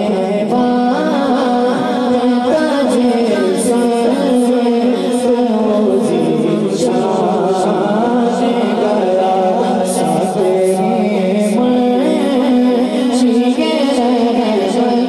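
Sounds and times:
man singing into a microphone: 0.0 - 15.0.

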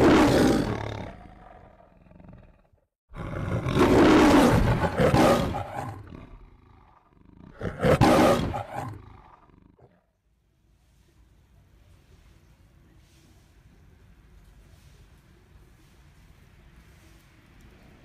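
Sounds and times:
lion roaring: 0.0 - 10.0.

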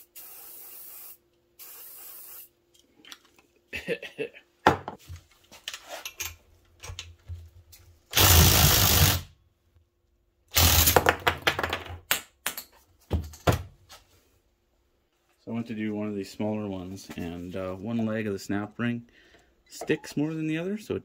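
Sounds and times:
impact wrench hammering: 10.6 - 11.2.

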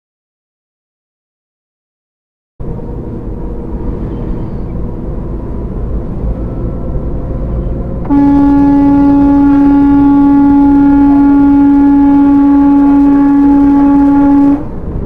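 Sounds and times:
road noise: 2.6 - 15.0
truck engine: 2.6 - 15.0
truck horn blast: 6.2 - 15.0.

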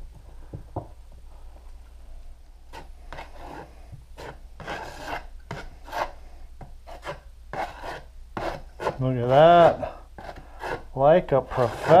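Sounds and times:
putty knife scraping compound: 2.7 - 12.0.

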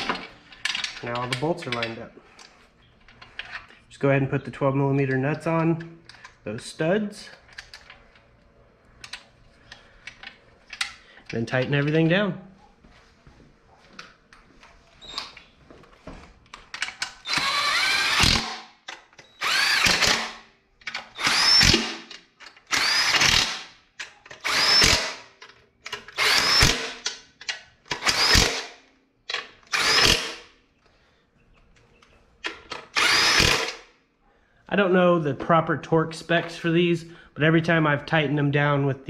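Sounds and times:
impact wrench bursts: 17.1 - 23.8, 24.4 - 27.2, 27.9 - 28.8, 29.6 - 30.5, 32.8 - 33.9.

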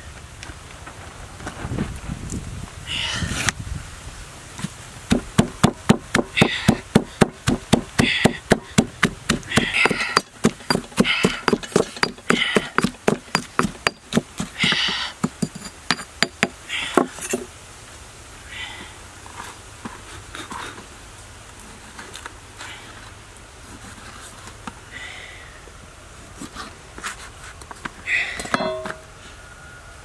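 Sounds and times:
pestle pounding in stone mortar: 5.1 - 17.5.

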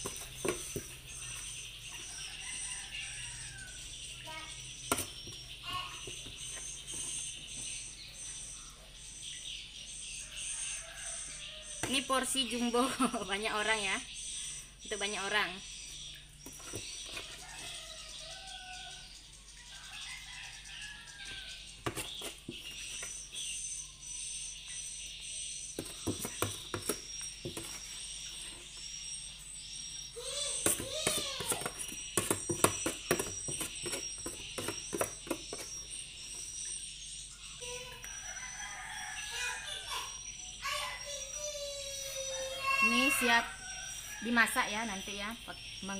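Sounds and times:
metal spoon scraping a tub: 0.0 - 2.7, 16.4 - 17.8, 21.8 - 23.4, 25.7 - 28.8, 30.4 - 36.8
bird calls: 0.0 - 45.9
high insect chirping: 0.0 - 45.9.

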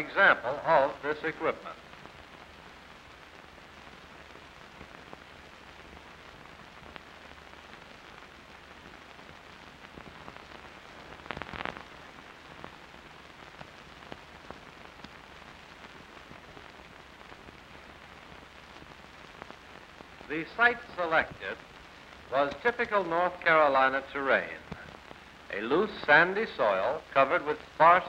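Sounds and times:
person narrating: 0.0 - 1.7, 20.3 - 21.6, 22.3 - 24.8, 25.5 - 28.0
film soundtrack hiss and crackle: 0.0 - 28.0.

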